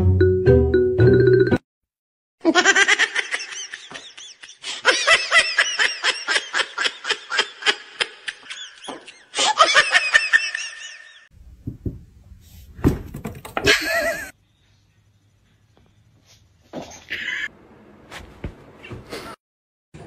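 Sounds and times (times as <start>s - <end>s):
person laughing hard: 2.4s - 11.2s, 13.6s - 14.3s.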